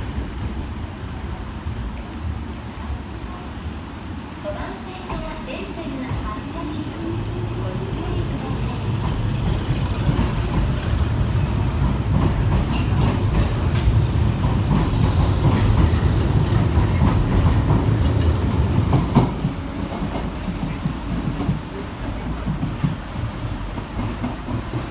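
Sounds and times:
train rumbling past: 0.0 - 24.9
wheels clicking over rail joints: 6.1 - 24.9.

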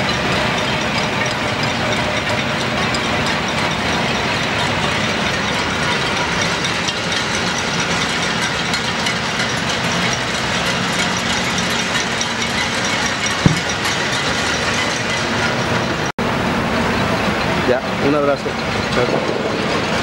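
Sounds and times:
pots and pans banging: 0.0 - 15.6
low thump: 13.4 - 13.7.

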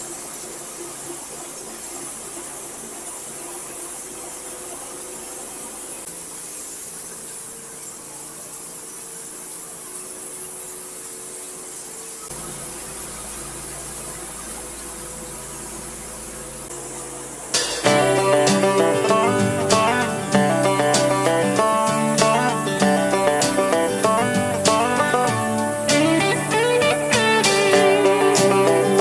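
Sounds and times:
sawmill running drone: 0.0 - 29.0
saw blade hissing through wood: 17.5 - 29.0.

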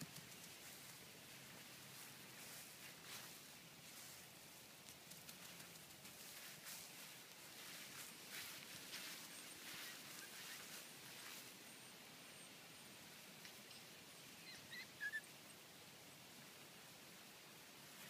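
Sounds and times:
faint rustling: 0.0 - 11.5.

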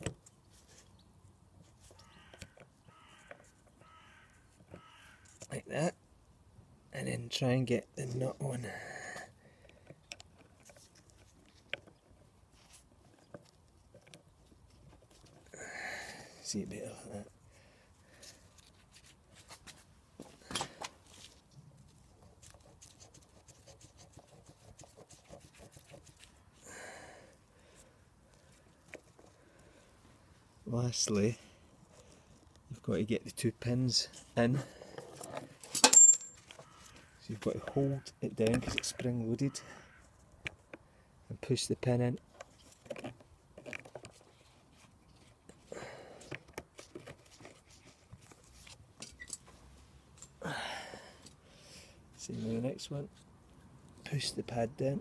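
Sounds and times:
small clicks and taps of handling: 9.6 - 12.2, 13.0 - 15.4, 42.2 - 45.6.

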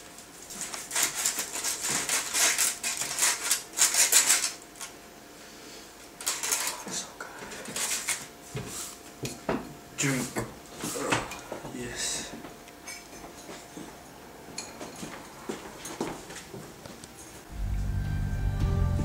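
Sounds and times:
knife sawing through foil: 0.5 - 4.6.

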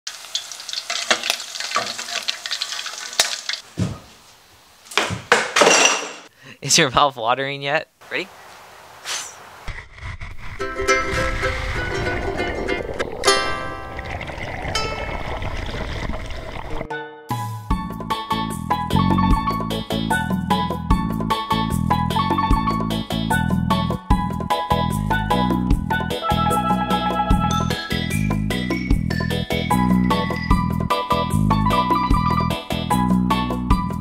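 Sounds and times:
food deep-frying in oil: 0.1 - 3.7
steady rushing noise: 9.5 - 16.8
plucked string note: 10.8 - 14.0.

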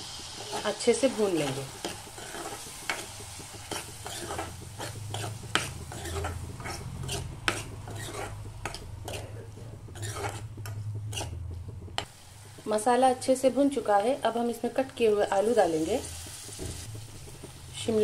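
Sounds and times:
food frying in oil: 0.0 - 18.0
spoon scraping a pan: 0.1 - 12.6
low hum: 2.8 - 15.0.

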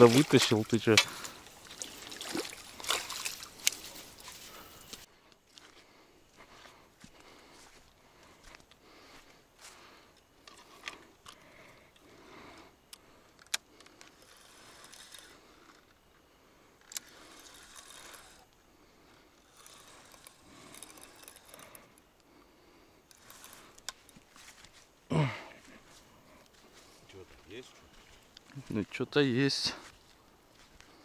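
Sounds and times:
fishing reel rattling and clicking: 13.3 - 16.0, 16.8 - 18.6, 19.4 - 22.1, 23.0 - 24.2.

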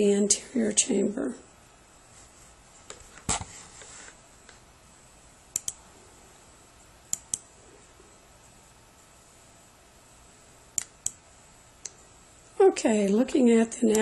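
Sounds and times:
faint room hiss: 0.0 - 14.0
computer mouse double-clicks: 5.5 - 5.8.

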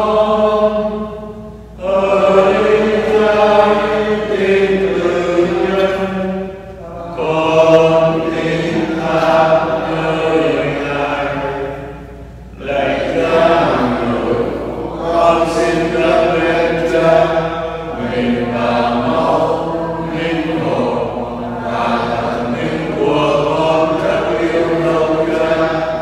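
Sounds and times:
voices singing slow sacred chant: 0.0 - 26.0.

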